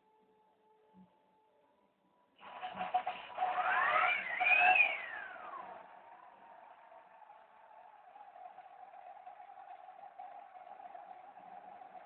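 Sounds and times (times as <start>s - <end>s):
electric rc helicopter motor whine: 3.4s - 5.8s.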